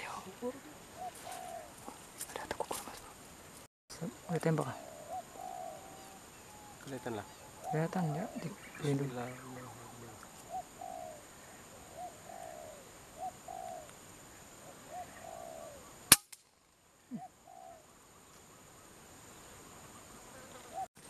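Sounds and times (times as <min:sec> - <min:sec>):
pigeon cooing: 0:00.9 - 0:03.1, 0:04.7 - 0:06.2, 0:06.8 - 0:13.9, 0:14.6 - 0:15.9, 0:17.1 - 0:17.8
air rifle shot: 0:16.1 - 0:16.4.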